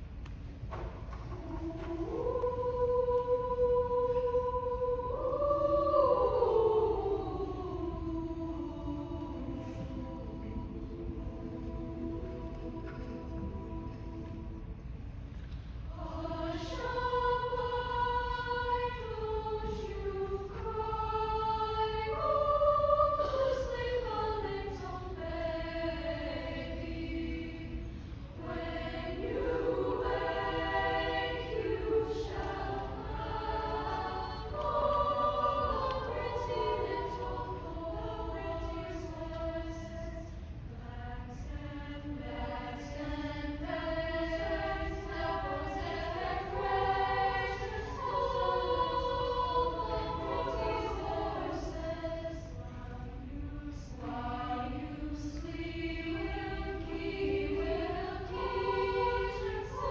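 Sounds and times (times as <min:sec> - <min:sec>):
women's choir singing: 0:00.7 - 0:15.2, 0:15.8 - 0:59.9.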